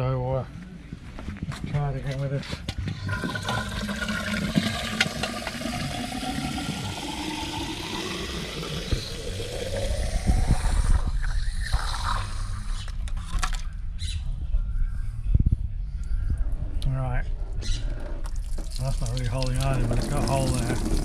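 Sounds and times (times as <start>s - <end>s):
pipe rumbling and knocking: 1.6s - 12.0s
tap water filling metal pipe: 2.9s - 10.4s, 18.2s - 21.0s.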